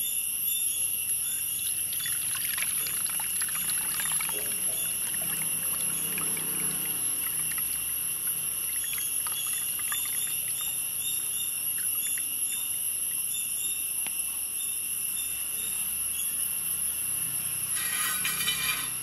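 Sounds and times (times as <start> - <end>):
insects droning and chirping: 0.0 - 19.0
drips and small splashes: 1.5 - 13.3.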